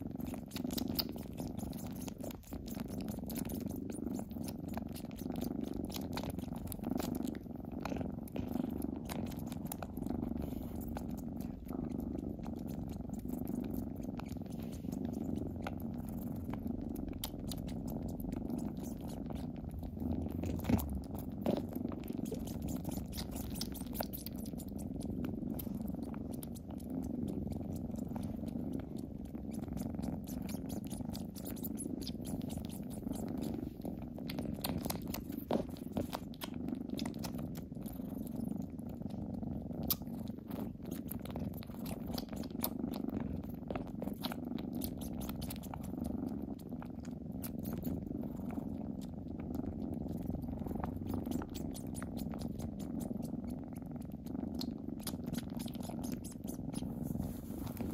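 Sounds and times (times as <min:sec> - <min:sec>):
kittens purring: 0:00.0 - 0:57.9
kitten sucking wet clicks: 0:20.3 - 0:25.8.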